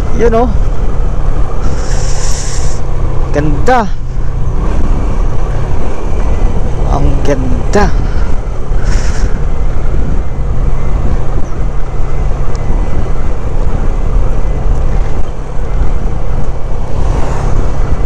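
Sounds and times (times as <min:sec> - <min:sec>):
motorcycle engine drone: 0:00.0 - 0:18.0
wind rumble on microphone: 0:00.0 - 0:18.0.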